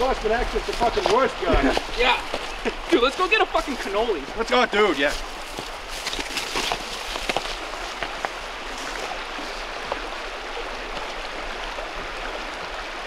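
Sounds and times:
footsteps on loose rocks: 0:00.0 - 0:09.2
creek rippling over stones: 0:00.0 - 0:13.0.

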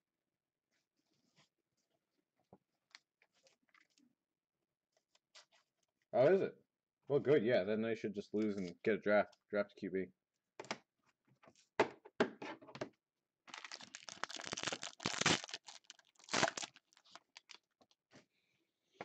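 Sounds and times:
foil wrapper tearing and crinkling: 0:13.5 - 0:17.8.

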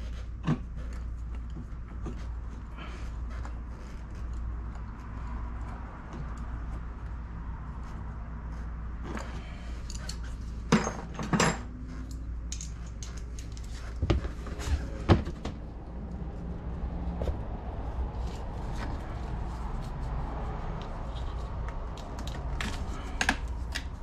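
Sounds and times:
steady low hum: 0:00.0 - 0:24.0
tools and bolts clinking on metal: 0:09.0 - 0:13.8.

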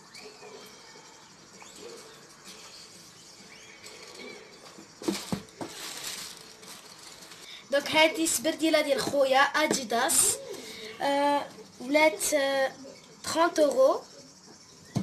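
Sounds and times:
tissue paper and plastic rustling: 0:03.9 - 0:08.4
knocks against cardboard box: 0:05.0 - 0:05.8.

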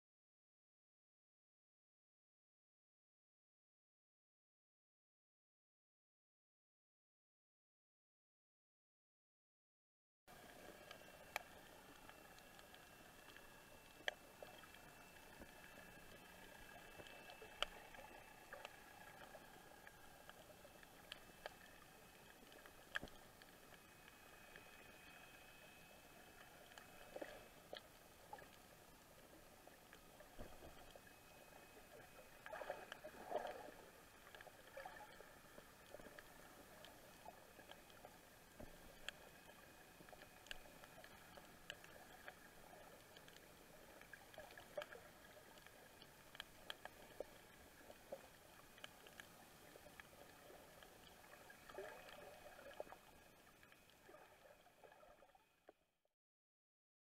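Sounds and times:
faint high whine: 0:10.3 - 0:55.0.

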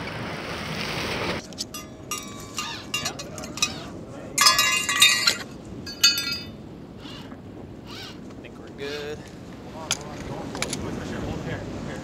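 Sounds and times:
metallic jingling and clinking: 0:01.6 - 0:06.6.

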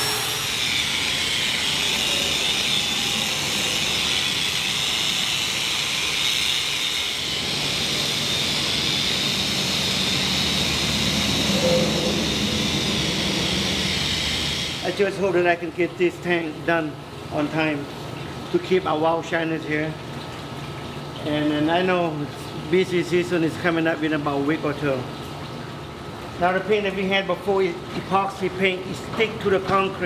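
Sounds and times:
angle grinder grinding paint: 0:00.0 - 0:15.4.

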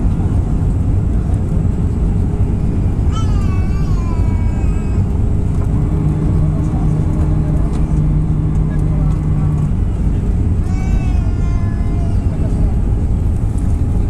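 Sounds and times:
aircraft engine and airflow roar: 0:00.0 - 0:14.0
steady low hum: 0:00.0 - 0:14.0.

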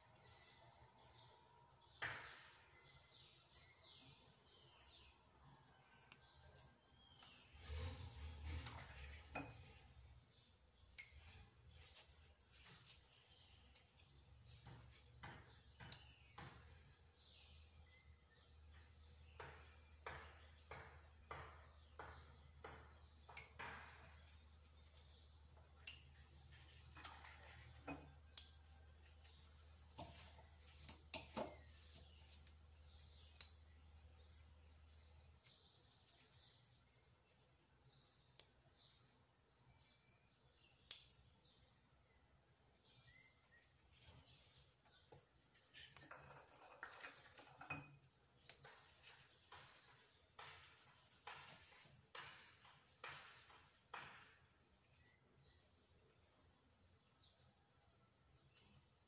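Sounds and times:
hands working dough: 0:00.0 - 0:59.0
cakes tapping on metal tray: 0:14.6 - 0:16.9, 0:18.7 - 0:24.4, 0:46.0 - 0:54.6.

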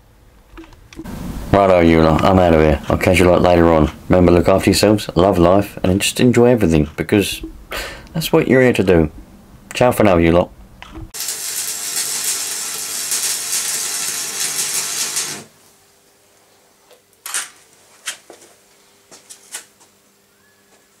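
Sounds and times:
low steady hum: 0:00.0 - 0:11.2
welding arc crackling and hissing: 0:11.1 - 0:15.6.

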